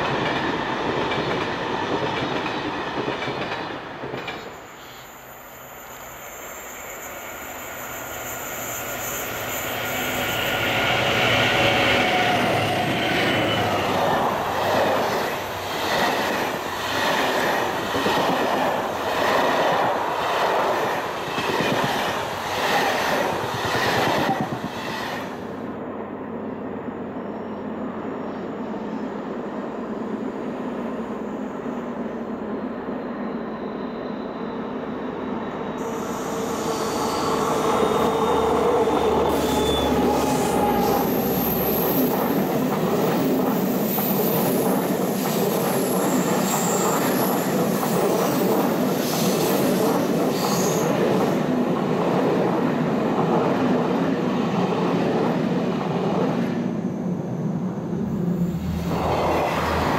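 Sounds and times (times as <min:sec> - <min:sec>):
diesel locomotive engine: 0:00.0 - 0:59.9
distant diesel train approaching: 0:00.0 - 0:59.9.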